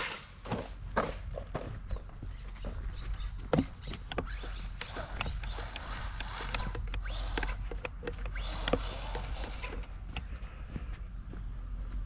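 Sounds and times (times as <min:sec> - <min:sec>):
footsteps crunching on dirt: 0:00.0 - 0:12.0
distant electric motor whine: 0:04.1 - 0:10.4.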